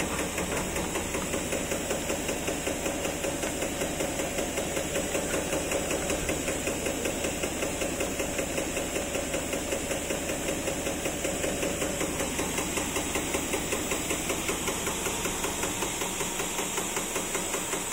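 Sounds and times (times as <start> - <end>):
fast regular knocking: 0.0 - 16.2.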